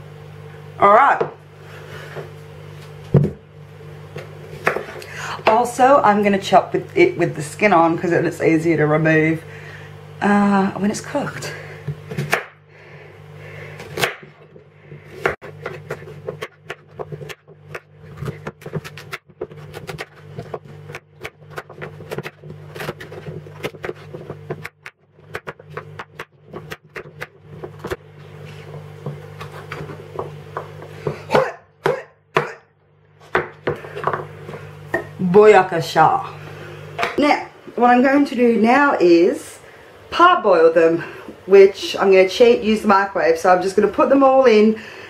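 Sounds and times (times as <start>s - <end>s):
steady low hum: 0.0s - 45.0s
knife chopping on wooden board: 4.6s - 5.0s, 12.0s - 12.6s, 13.9s - 14.5s, 15.1s - 28.0s, 28.7s - 32.6s, 33.2s - 35.1s.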